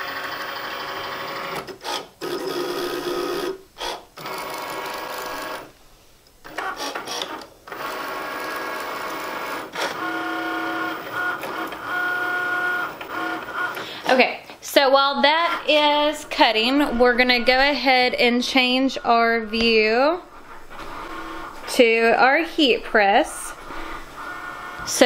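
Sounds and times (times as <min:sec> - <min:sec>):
cutting machine motors whining: 0:06.5 - 0:14.1, 0:15.2 - 0:25.0.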